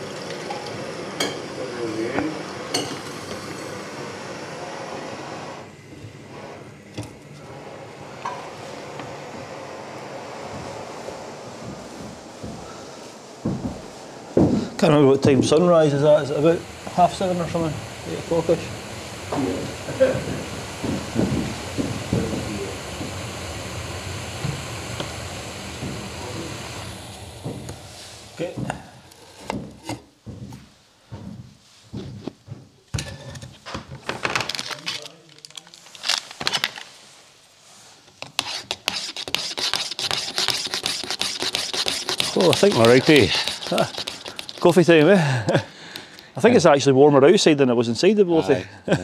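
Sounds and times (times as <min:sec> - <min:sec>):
camping stove hissing: 0:00.0 - 0:30.2, 0:37.9 - 0:46.8.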